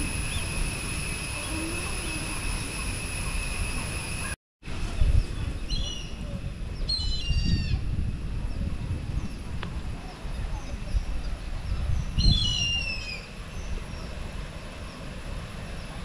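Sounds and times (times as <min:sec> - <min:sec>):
steady high-pitched whine: 0:00.0 - 0:07.0
low rumble on microphone: 0:04.7 - 0:14.5
bird chirping calls: 0:10.1 - 0:14.2.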